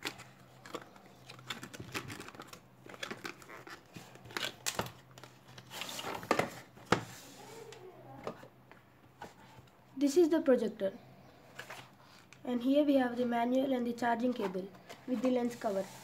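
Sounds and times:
paper sleeve scraping and rustling: 14.4 - 16.0.

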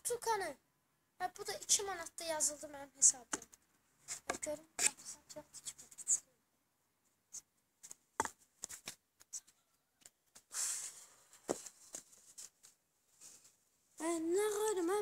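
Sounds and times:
scuffs and rustles of movement: 10.4 - 13.6.

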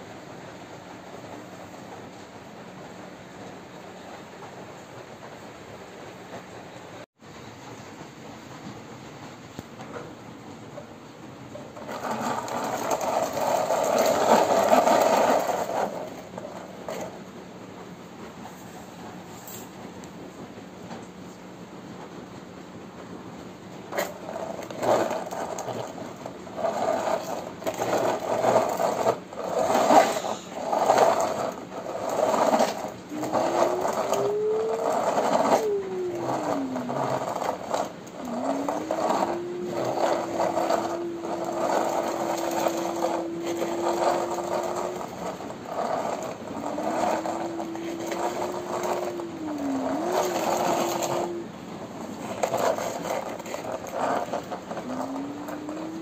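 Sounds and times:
toy car wheels rattling and scraping: 11.5 - 17.4, 23.9 - 56.0
thin whine: 23.8 - 56.0.

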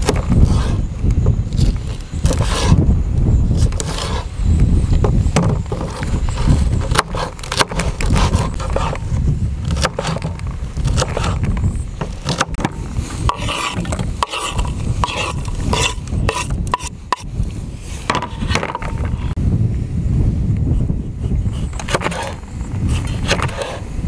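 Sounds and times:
blade scraping across board: 0.0 - 0.9, 1.5 - 2.8, 3.5 - 4.4, 5.4 - 19.4, 21.2 - 23.9
steady low rumble: 0.0 - 18.1
knife chopping on wooden board: 6.8 - 9.0.

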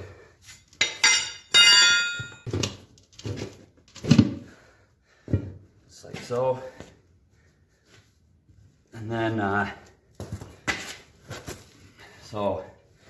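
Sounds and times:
tire iron clanging on metal: 0.8 - 2.5.

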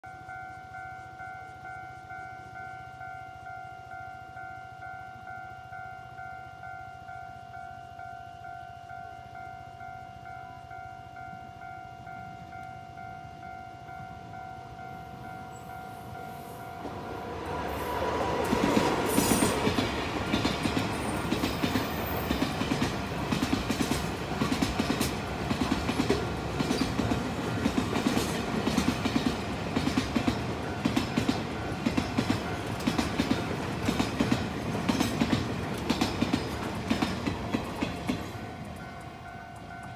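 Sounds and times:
level-crossing warning bell: 0.0 - 39.9
train wheels clattering: 16.7 - 39.9.

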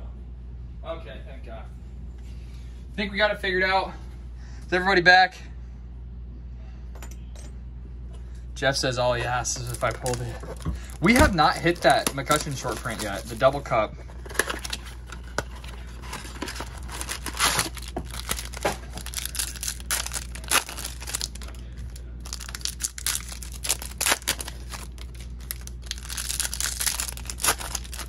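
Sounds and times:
packaging tearing and crinkling: 9.3 - 28.0.

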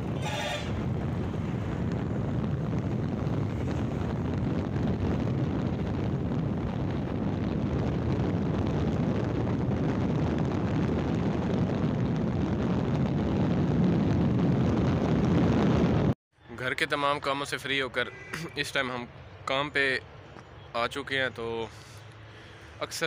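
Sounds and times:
wind rushing over microphone: 0.0 - 16.2
road and engine noise: 0.0 - 23.0.

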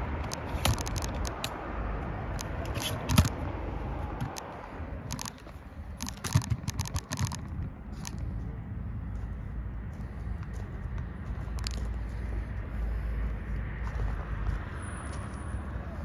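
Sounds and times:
steady low rumble: 0.0 - 16.0
sharp clicks and knocks: 0.1 - 1.6, 2.3 - 3.4, 4.1 - 8.3.

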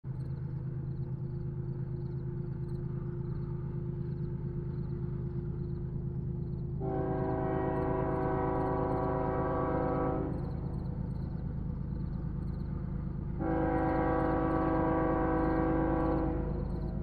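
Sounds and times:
diesel locomotive rumble: 0.0 - 17.0
locomotive air horn chord: 6.8 - 10.5, 13.4 - 16.8.

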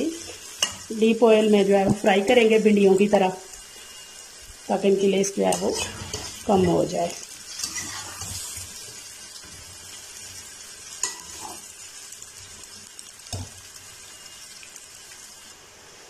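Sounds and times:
food deep-frying in oil: 0.0 - 16.0.

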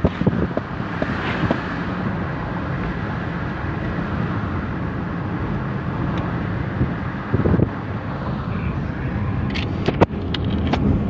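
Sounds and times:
vehicle rumble from on board: 0.0 - 11.0.

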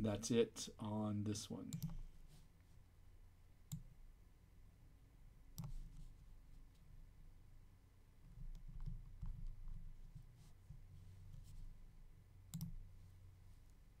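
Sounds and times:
low steady hum: 0.0 - 14.0
computer mouse clicks: 1.7 - 2.0, 3.7 - 3.9, 5.6 - 6.1, 12.5 - 12.8.

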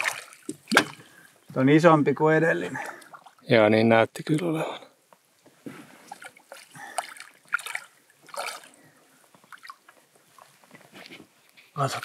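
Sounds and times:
water splashing and dripping: 0.0 - 1.3, 2.7 - 3.5, 6.0 - 10.5.

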